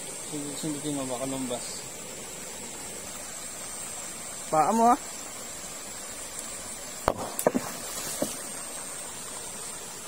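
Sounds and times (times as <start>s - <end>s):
shallow river water rushing: 0.0s - 10.0s
splashes and knocks in water: 7.0s - 8.4s.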